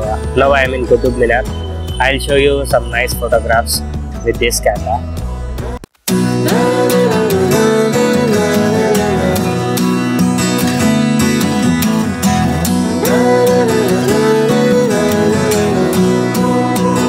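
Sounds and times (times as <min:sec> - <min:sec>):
strummed guitar: 0:05.6 - 0:17.0.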